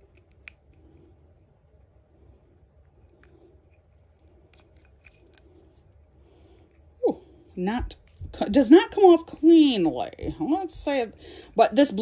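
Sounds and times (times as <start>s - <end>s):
plastic film peeling: 4.0s - 6.2s.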